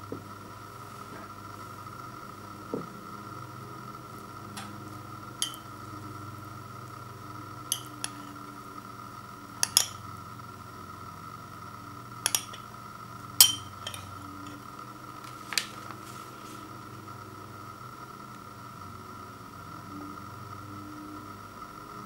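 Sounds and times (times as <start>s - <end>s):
spoon clinking against ceramic bowl: 5.4s - 5.7s, 7.7s - 8.3s, 9.6s - 10.0s, 12.3s - 12.7s, 13.4s - 14.6s.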